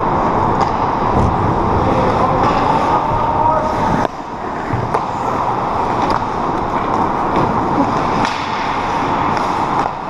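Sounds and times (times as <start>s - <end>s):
hockey sticks and puck clacking: 0.3s - 10.0s
skates scraping on ice: 3.6s - 10.0s.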